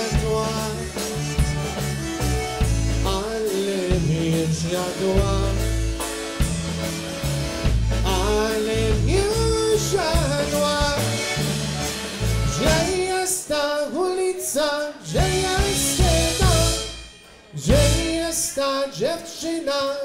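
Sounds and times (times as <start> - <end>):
polka band playing a waltz: 0.0 - 19.4.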